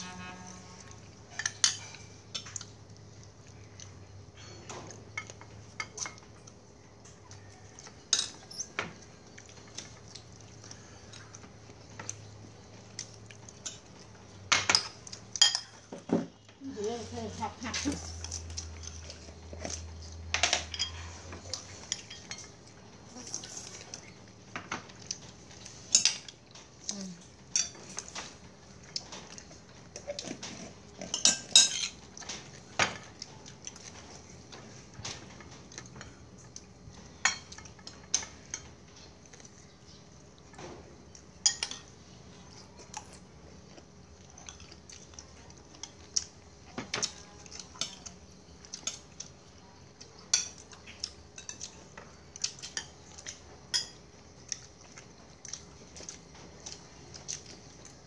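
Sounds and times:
spoons clinking on ceramic plates: 14.5s - 15.8s, 20.4s - 21.0s, 31.1s - 32.0s, 41.4s - 41.9s, 53.7s - 54.0s.

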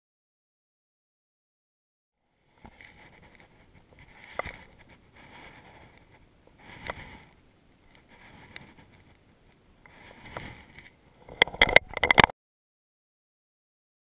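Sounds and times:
hands handling camera clicks: 10.8s - 12.3s.

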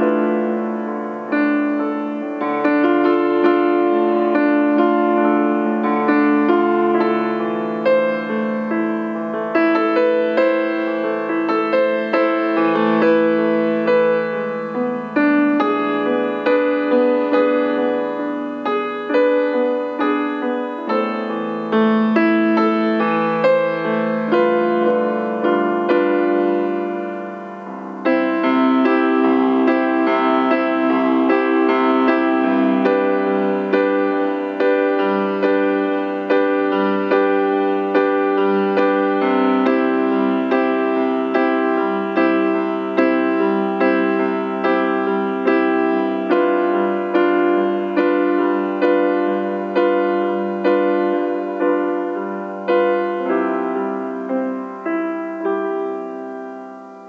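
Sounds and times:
hymn played on piano keyboard: 0.0s - 57.0s.

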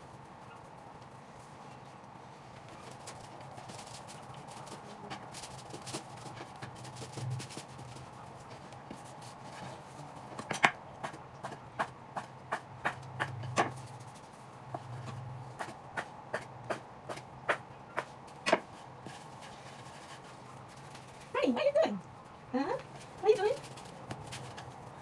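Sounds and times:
knife chopping on wooden board: 15.6s - 18.7s.

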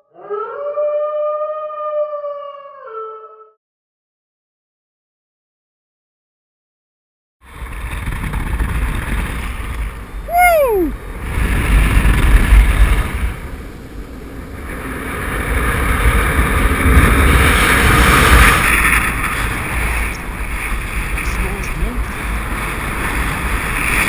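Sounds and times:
wind rushing over microphone: 7.5s - 24.0s.

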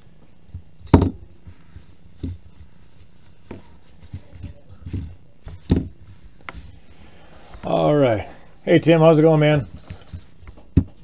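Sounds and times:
objects knocking and thudding: 0.5s - 2.7s, 3.4s - 6.8s, 9.6s - 11.0s.

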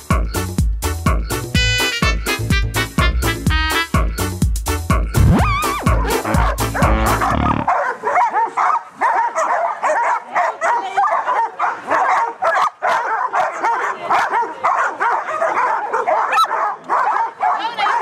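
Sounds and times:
dogs barking and yipping: 5.4s - 18.0s.

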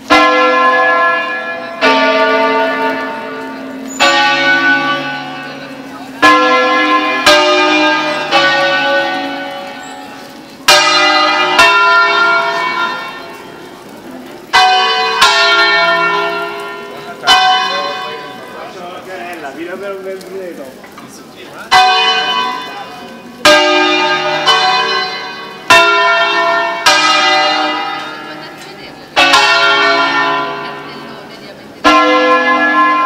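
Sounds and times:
church bells ringing: 0.0s - 20.4s, 21.5s - 33.0s.

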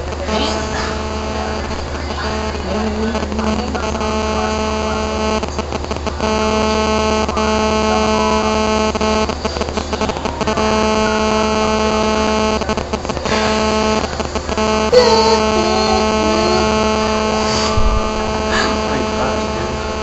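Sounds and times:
loud electric buzz: 0.0s - 20.0s
low hum: 13.3s - 20.0s.

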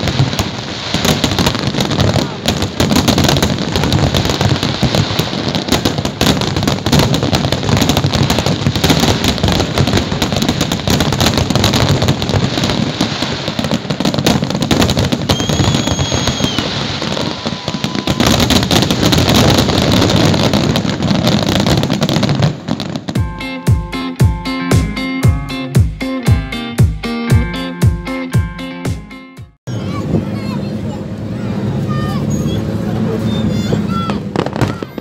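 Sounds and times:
fireworks crackling bangs: 0.0s - 23.6s, 31.2s - 35.0s
high whistle-like tone: 15.3s - 18.2s.

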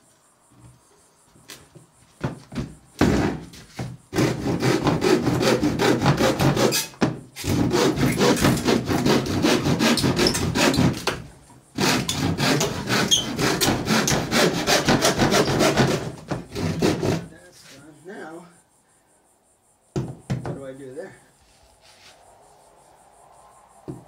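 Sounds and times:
hand saw cutting plywood: 4.1s - 11.2s, 11.8s - 17.4s.

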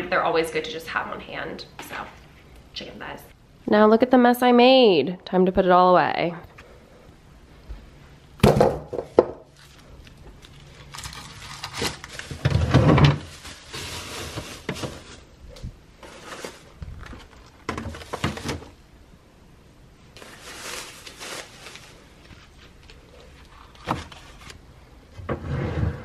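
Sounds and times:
items knocking on counter: 8.4s - 9.5s
plastic bags rustling: 9.1s - 18.8s, 20.0s - 24.7s.

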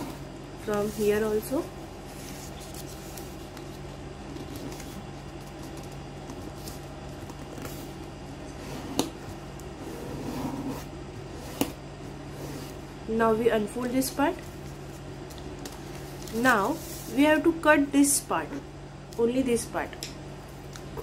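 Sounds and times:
paper rustling and rubbing: 0.0s - 8.1s, 14.4s - 17.4s
steady low hum: 0.0s - 21.0s.

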